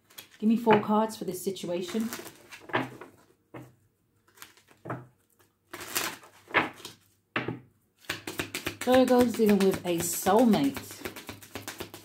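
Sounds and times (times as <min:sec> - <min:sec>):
cards shuffling: 0:01.9 - 0:03.2, 0:04.2 - 0:07.1, 0:08.0 - 0:12.0.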